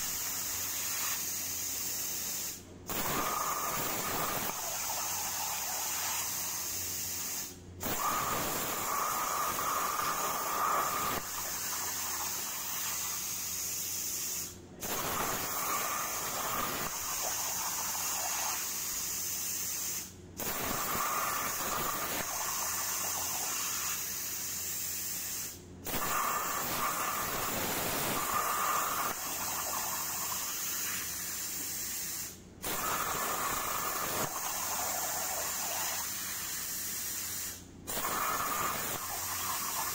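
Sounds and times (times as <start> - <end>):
plasma torch hissing: 0.0 - 39.9.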